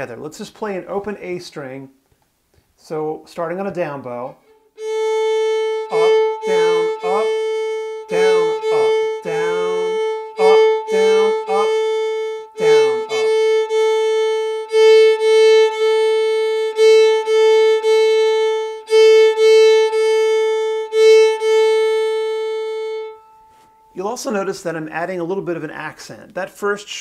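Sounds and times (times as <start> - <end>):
fiddle bowing shuffle rhythm: 4.3 - 24.7.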